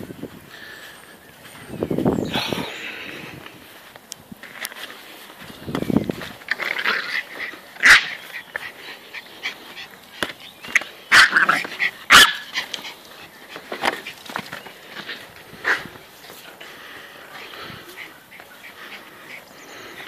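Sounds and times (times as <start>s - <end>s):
small dog barking and yipping: 6.8s - 8.6s, 11.1s - 12.9s.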